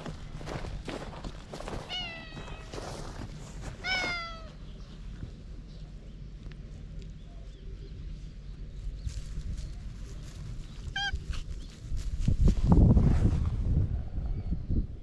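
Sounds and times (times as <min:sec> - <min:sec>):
cat meowing: 0:01.9 - 0:02.7, 0:03.8 - 0:04.6, 0:10.9 - 0:11.4.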